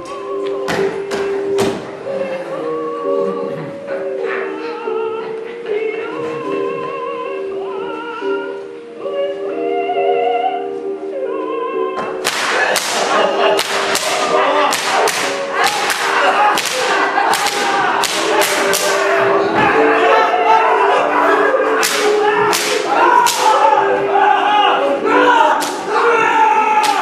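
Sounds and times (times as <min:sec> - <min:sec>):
music with sung notes: 0:00.0 - 0:27.0
whips cracking: 0:12.2 - 0:19.1, 0:21.8 - 0:23.6, 0:25.6 - 0:25.9.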